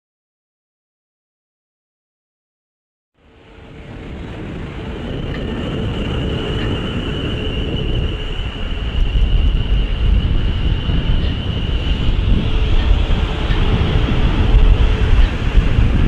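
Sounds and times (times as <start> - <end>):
steady high whine: 3.2 - 16.0
train wheels rumbling on rails: 3.2 - 16.0.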